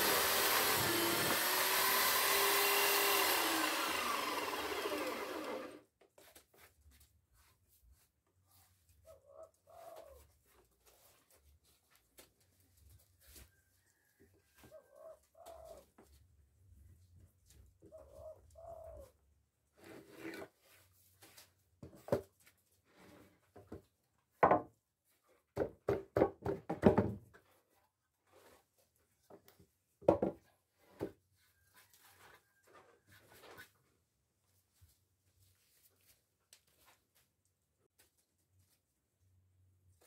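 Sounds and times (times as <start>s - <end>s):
bird cooing: 9.2s - 10.2s, 17.9s - 19.1s.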